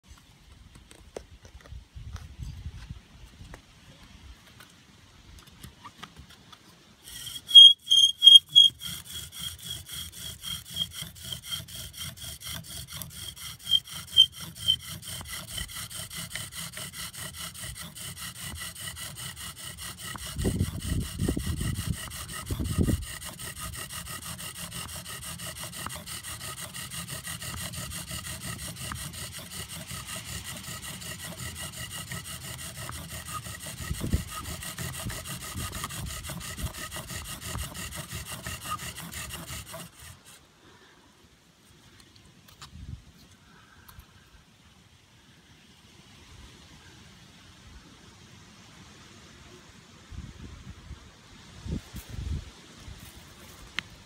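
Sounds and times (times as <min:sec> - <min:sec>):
bow drill spindle grinding: 0:07.0 - 0:40.4
high squeal: 0:07.1 - 0:09.0, 0:13.6 - 0:14.9.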